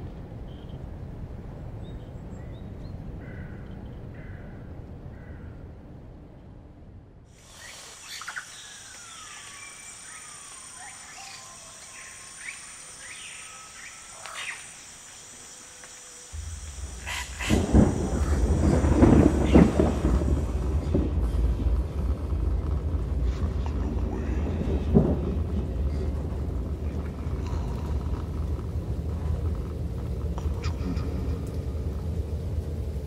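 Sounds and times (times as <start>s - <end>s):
high insect drone: 7.3s - 33.0s
faint chirps: 7.4s - 21.0s
birds calling: 7.4s - 29.3s
low steady rumble: 16.2s - 33.0s.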